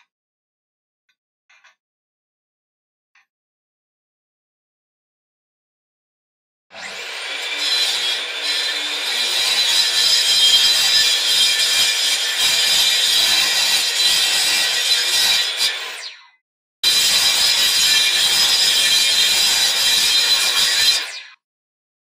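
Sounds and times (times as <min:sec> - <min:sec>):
power tool cutting wood: 0:06.7 - 0:16.2, 0:16.8 - 0:21.4.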